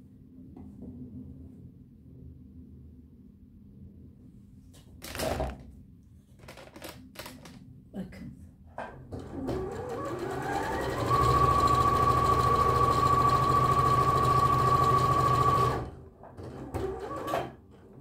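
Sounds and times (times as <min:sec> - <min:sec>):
sewing machine stitching: 0:09.2 - 0:17.6.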